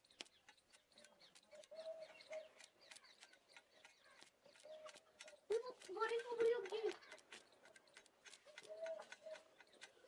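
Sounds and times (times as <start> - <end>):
bird cooing: 1.6 - 2.6, 8.5 - 9.6.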